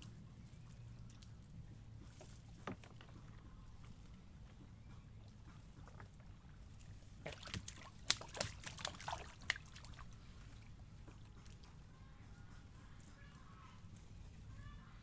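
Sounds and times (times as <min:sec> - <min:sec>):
low steady hum: 0:00.0 - 0:15.0
knocks and slaps in a canoe: 0:02.2 - 0:03.4.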